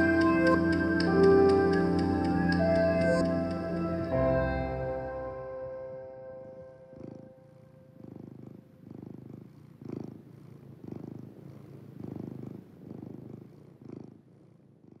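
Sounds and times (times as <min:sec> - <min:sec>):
cat purring: 0:00.0 - 0:04.1, 0:06.5 - 0:15.0.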